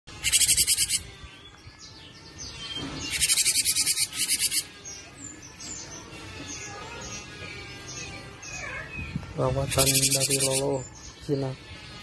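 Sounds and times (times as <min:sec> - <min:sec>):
bird calling rapid high notes: 0:00.2 - 0:01.0.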